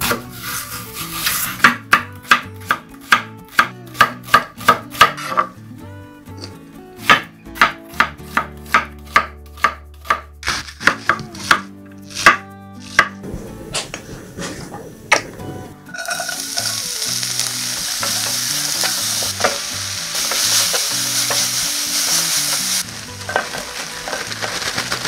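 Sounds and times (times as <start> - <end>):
knife chopping on wooden board: 7.0 - 13.2.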